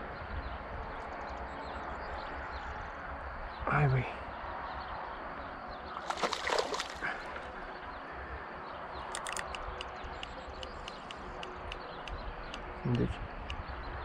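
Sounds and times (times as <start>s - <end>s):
splash in water: 6.0s - 7.5s
faint evenly spaced ticks: 9.0s - 13.8s.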